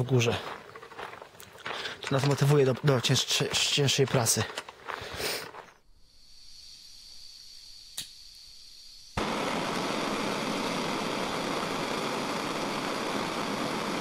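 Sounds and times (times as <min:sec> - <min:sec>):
faint hiss: 0:01.7 - 0:14.0
click: 0:07.9 - 0:08.2
steady rushing noise: 0:09.2 - 0:14.0.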